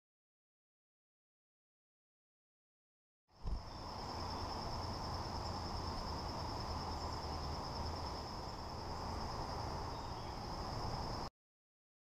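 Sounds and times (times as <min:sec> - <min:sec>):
crickets trilling: 0:03.3 - 0:11.3.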